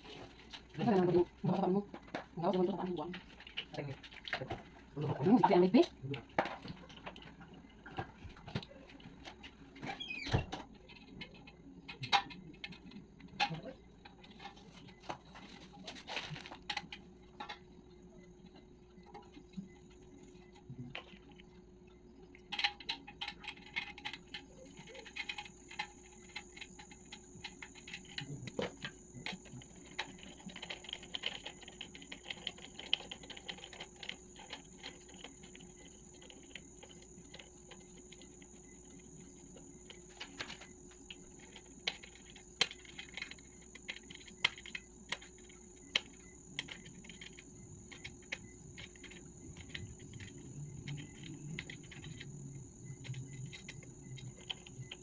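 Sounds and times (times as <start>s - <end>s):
light clicks and clinks of parts: 22.3s - 55.0s.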